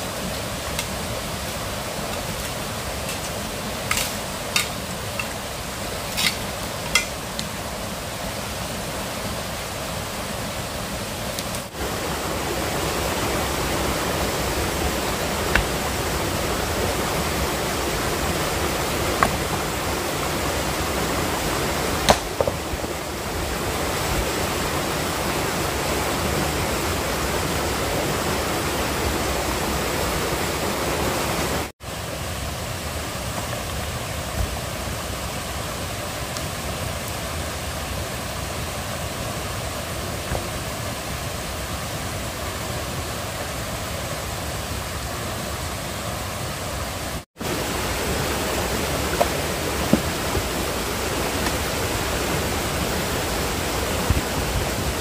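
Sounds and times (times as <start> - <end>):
steady rushing noise: 0.0 - 34.9, 47.0 - 55.0.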